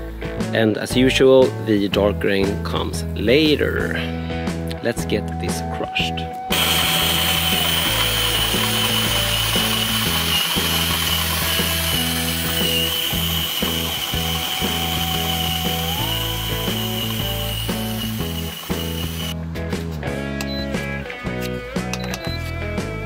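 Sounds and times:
background music: 0.0s - 23.0s
drill motor whine: 6.5s - 19.4s
grain rattling in mill: 6.5s - 19.4s.

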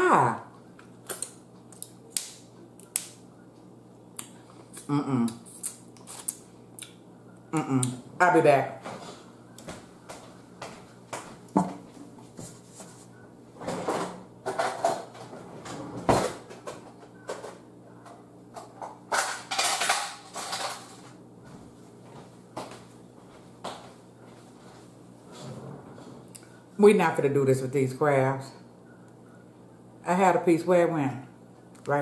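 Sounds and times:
kitchenware clattering: 18.6s - 21.0s.

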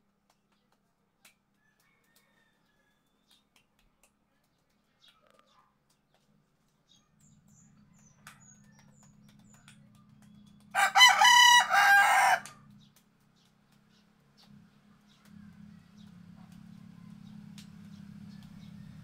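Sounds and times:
rooster crowing: 1.7s - 3.1s, 10.8s - 12.6s.

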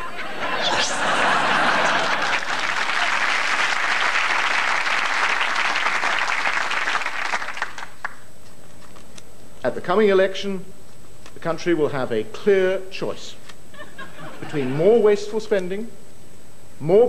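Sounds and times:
audience applauding: 0.4s - 8.3s.

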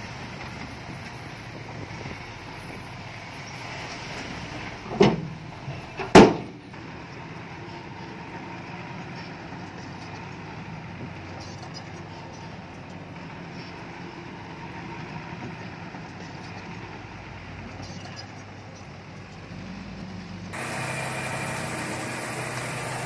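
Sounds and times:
diesel engine running: 0.0s - 23.0s
loud knocks: 6.0s - 6.6s.

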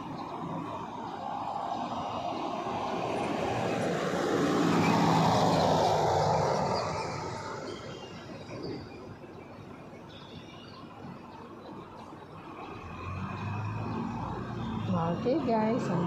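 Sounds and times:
vehicle passing by: 0.0s - 8.4s, 12.4s - 16.0s
steady traffic background: 0.0s - 16.0s.

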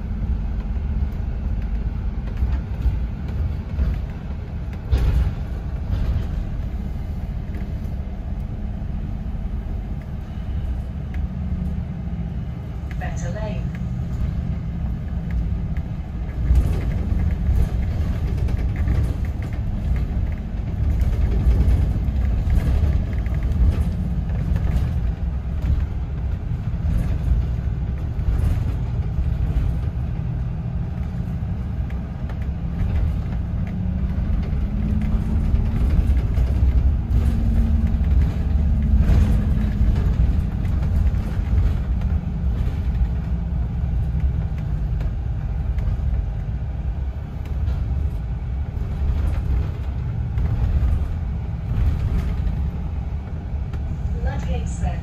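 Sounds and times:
bus engine and road rumble: 0.0s - 55.0s
small clicks and rattles: 13.7s - 54.4s.

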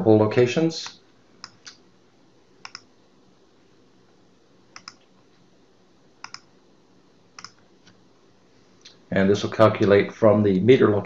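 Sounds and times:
faint room hiss: 0.0s - 11.0s
computer mouse clicks: 1.4s - 1.8s, 2.6s - 2.9s, 4.7s - 5.1s, 6.2s - 6.5s, 7.4s - 8.0s.

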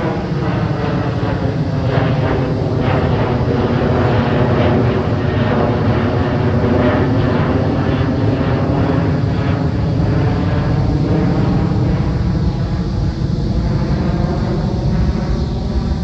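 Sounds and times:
jet engines rumbling overhead: 0.0s - 16.0s.

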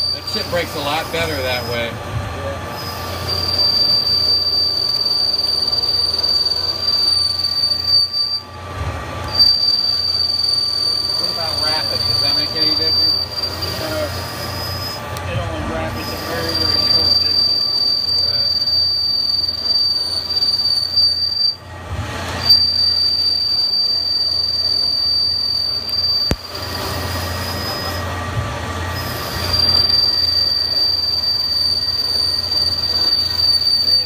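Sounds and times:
lathe cutting with high squeal: 0.0s - 34.0s.

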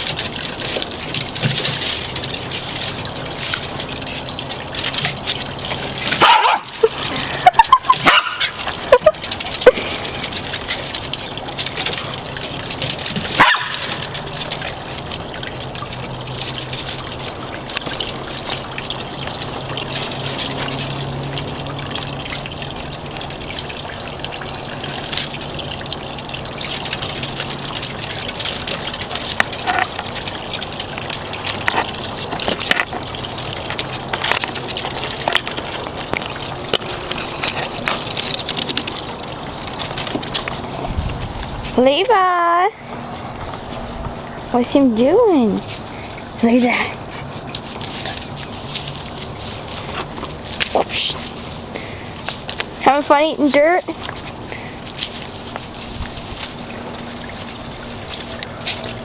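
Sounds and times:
small dogs barking: 6.1s - 7.0s, 7.9s - 8.7s, 13.3s - 14.0s.

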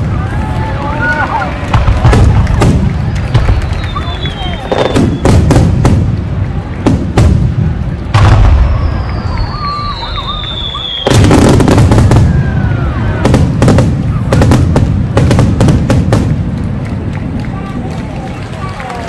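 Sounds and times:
rapid crackling bangs: 0.0s - 9.5s, 10.9s - 18.7s
fireworks bursting with bangs: 0.0s - 17.8s
high falling whistle: 8.6s - 11.3s.

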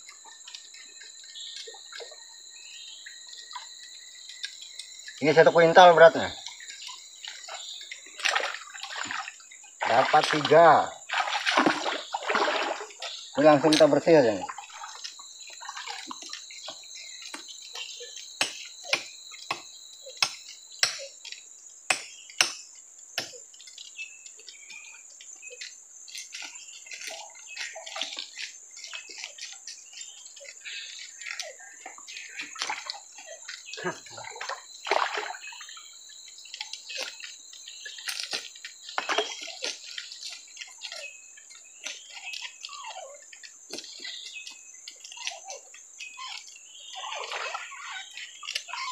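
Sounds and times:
water splashing and trickling: 3.2s - 18.2s, 26.1s - 45.6s, 46.2s - 48.9s.

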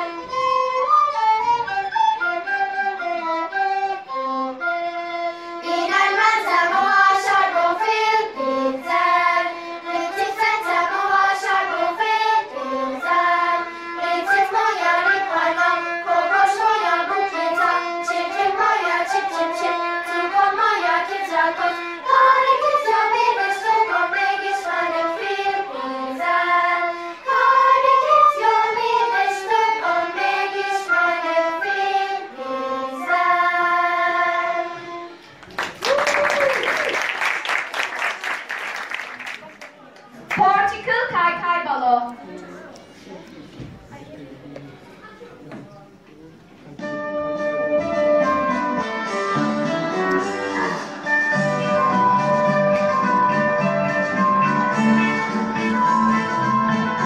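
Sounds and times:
soprano recorders: 0.0s - 35.3s, 46.8s - 57.0s
violin: 0.0s - 35.4s
children's choir singing: 5.5s - 35.3s, 49.5s - 57.0s.

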